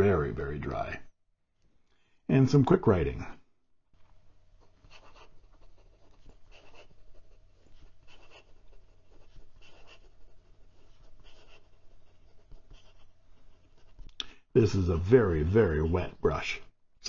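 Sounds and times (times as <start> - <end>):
fountain pen scratching on paper: 4.6 - 14.1.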